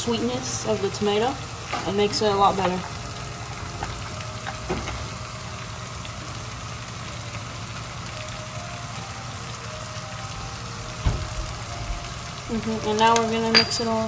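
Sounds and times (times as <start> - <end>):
tomatoes sizzling in frying pan: 0.0 - 14.0.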